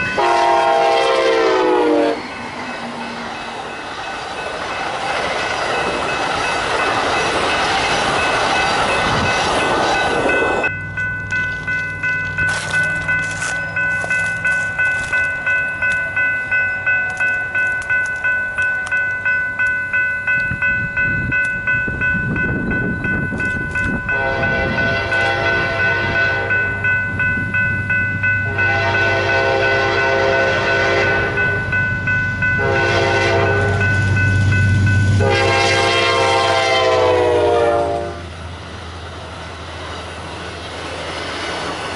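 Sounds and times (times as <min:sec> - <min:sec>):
railroad crossing bell: 0:00.0 - 0:41.9
train cars rumbling past: 0:00.0 - 0:41.9
train engine approaching: 0:00.0 - 0:41.9
train horn blasts: 0:00.1 - 0:02.2, 0:24.1 - 0:26.7, 0:28.4 - 0:31.4, 0:32.6 - 0:33.9, 0:35.2 - 0:38.3.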